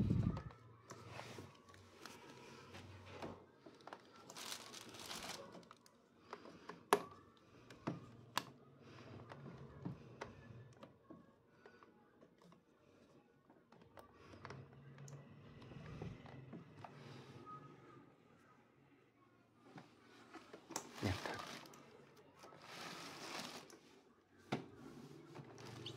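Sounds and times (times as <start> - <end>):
plastic bag crinkling: 3.8 - 6.0, 20.8 - 21.8, 22.6 - 23.8.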